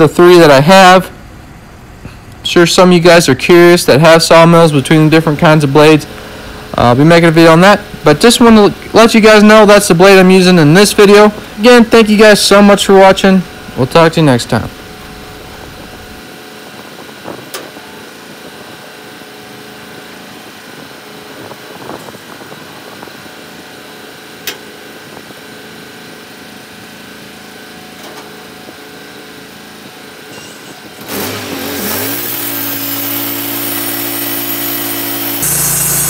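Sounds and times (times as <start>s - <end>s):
sawmill engine running: 0.0s - 16.2s, 31.0s - 36.0s.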